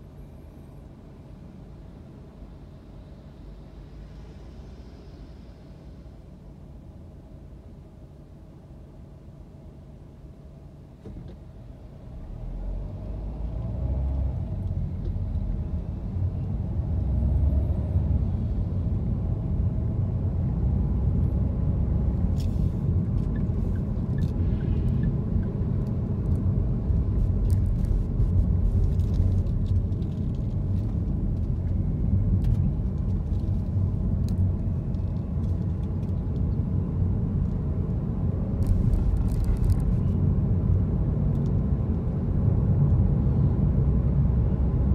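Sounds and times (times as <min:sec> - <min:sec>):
car engine and road rumble: 0:00.0 - 0:44.9.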